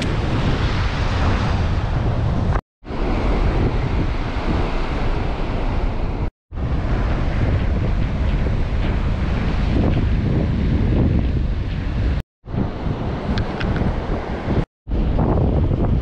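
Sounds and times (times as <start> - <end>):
surf washing up beach: 0.0 - 10.9
wind rumbling on microphone: 0.0 - 16.0.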